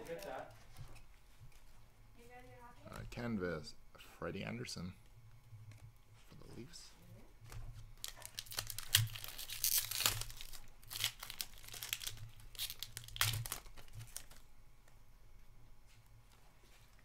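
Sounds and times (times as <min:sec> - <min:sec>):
foil wrapper tearing and crinkling: 0:08.0 - 0:14.4.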